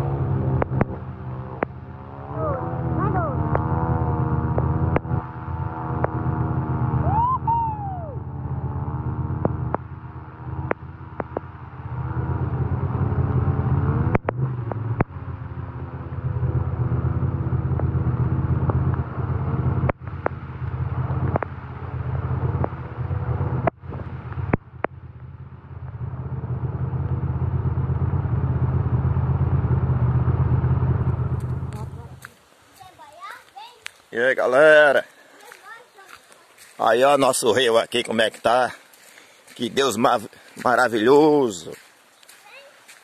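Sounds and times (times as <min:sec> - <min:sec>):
quad bike engine revving: 0:00.0 - 0:32.4
steady low rumble: 0:00.0 - 0:32.8
whistle-like glide: 0:07.0 - 0:08.3.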